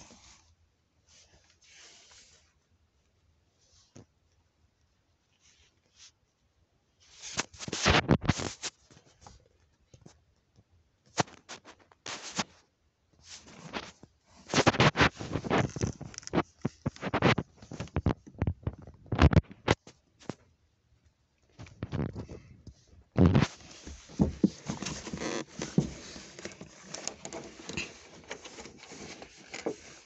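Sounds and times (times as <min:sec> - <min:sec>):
phone handling scratching and rubbing: 0:07.2 - 0:09.0, 0:11.2 - 0:12.6, 0:13.3 - 0:20.4, 0:23.1 - 0:30.0.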